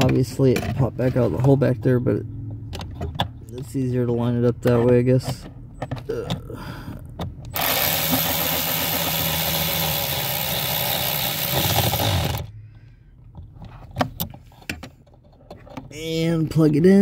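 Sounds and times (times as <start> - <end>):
cordless power ratchet running: 7.5 - 12.5.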